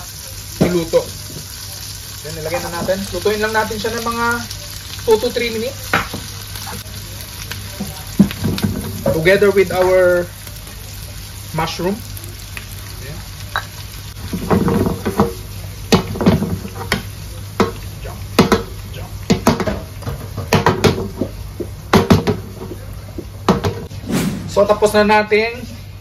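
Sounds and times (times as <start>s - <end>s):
vegetables sizzling in butter: 0.0s - 20.0s.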